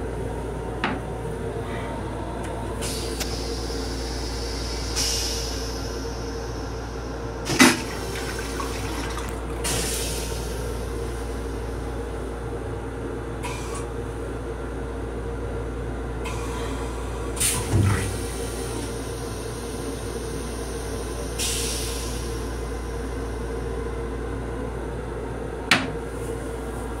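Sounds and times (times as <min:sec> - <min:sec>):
train rumble: 0:00.0 - 0:27.0
toilet flush clack: 0:07.5 - 0:10.3.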